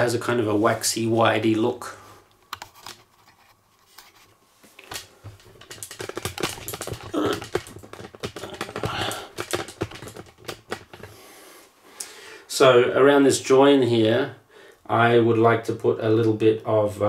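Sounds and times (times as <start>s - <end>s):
clicking and rustling handling noise: 2.3s - 11.2s.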